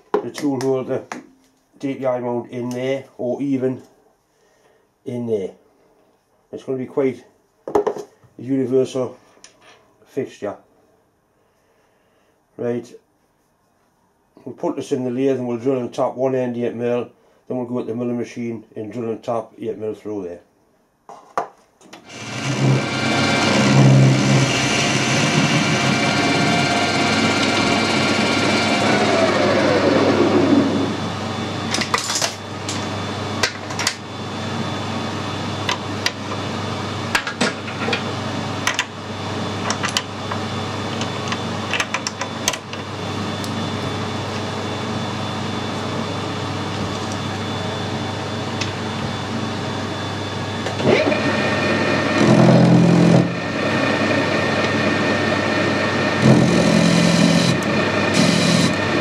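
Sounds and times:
metal lathe running: 22.1s - 31.9s, 50.6s - 59.0s
steady hum: 22.1s - 59.0s.

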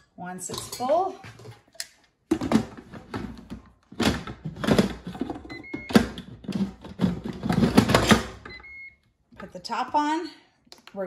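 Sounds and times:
plastic lid scraping and clunking: 2.3s - 8.5s.

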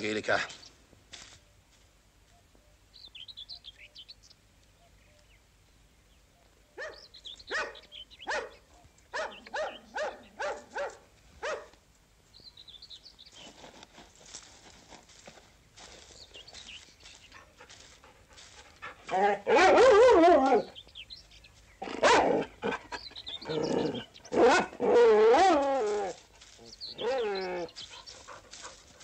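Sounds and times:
faint birdsong: 0.0s - 29.0s
dog barking: 6.8s - 11.8s, 19.0s - 20.7s, 21.8s - 22.8s, 24.3s - 25.6s.

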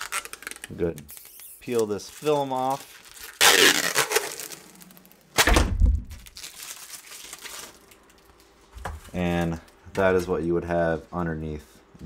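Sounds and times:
plastic film peeling off: 0.0s - 8.5s.

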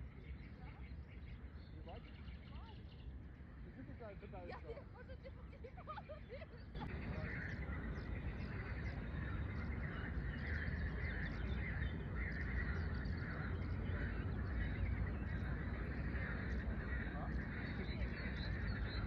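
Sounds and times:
birds chirping: 0.0s - 19.0s
low steady rumble: 5.4s - 19.0s
frogs croaking: 6.8s - 19.0s.

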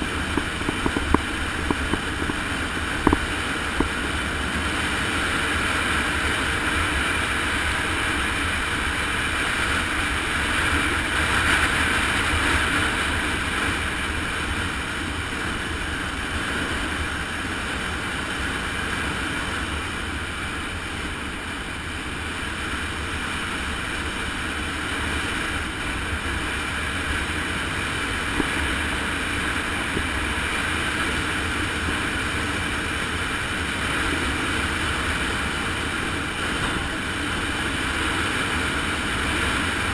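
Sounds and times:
wind on microphone: 0.0s - 39.9s.

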